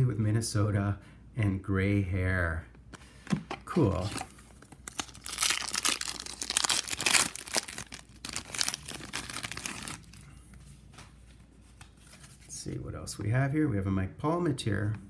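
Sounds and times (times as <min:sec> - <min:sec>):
wrapper tearing and crinkling: 0:03.8 - 0:10.2.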